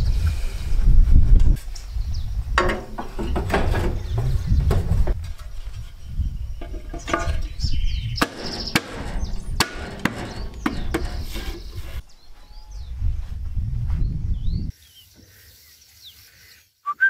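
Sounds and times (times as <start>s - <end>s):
sharp metal knocks: 2.6s - 4.2s, 6.6s - 11.9s.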